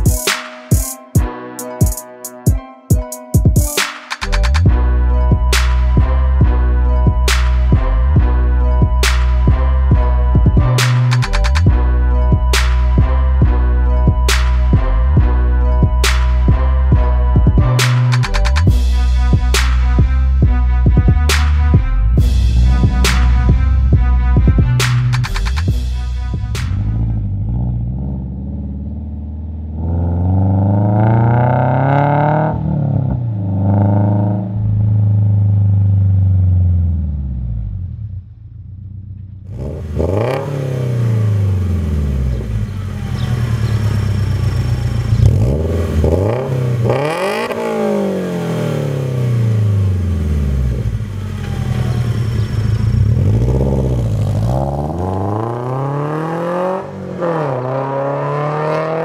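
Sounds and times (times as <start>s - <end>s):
car engine accelerating and revving: 21.0s - 25.8s, 26.4s - 38.2s, 39.4s - 59.0s.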